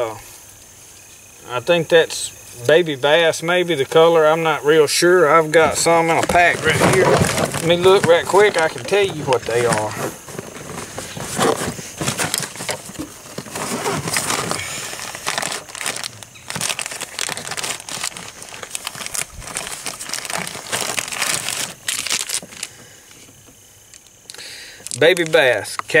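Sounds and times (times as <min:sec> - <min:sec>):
plastic packets crinkling: 0:05.5 - 0:22.8, 0:23.9 - 0:26.0.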